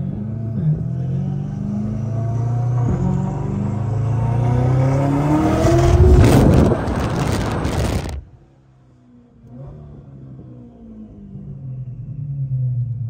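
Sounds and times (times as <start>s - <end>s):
car engine accelerating: 0.0s - 8.4s.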